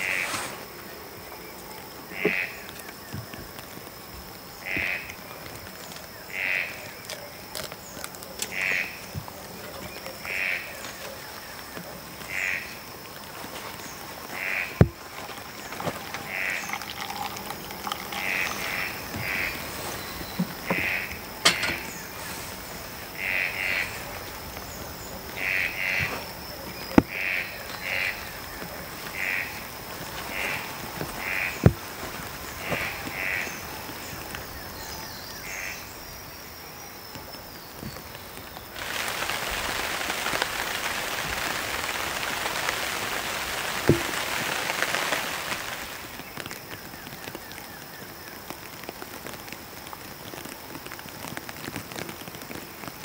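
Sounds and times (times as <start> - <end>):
frog calling: 0.0 - 36.6
rain hiss: 0.0 - 53.0.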